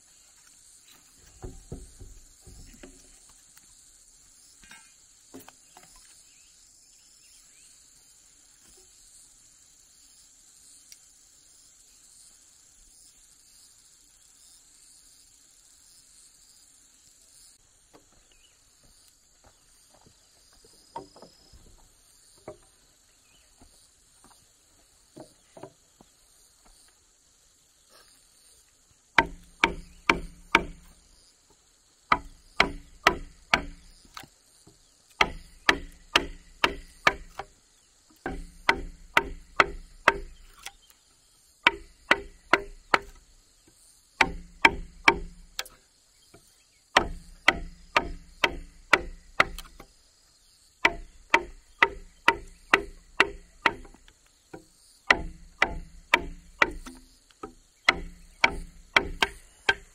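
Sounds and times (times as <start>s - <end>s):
high insect drone: 0.0s - 59.9s
hand tool chopping wood: 1.2s - 3.2s, 29.2s - 31.0s, 32.1s - 34.3s, 35.1s - 37.6s, 38.2s - 40.9s, 41.6s - 43.2s, 44.2s - 45.8s, 46.9s - 49.9s, 50.8s - 59.9s.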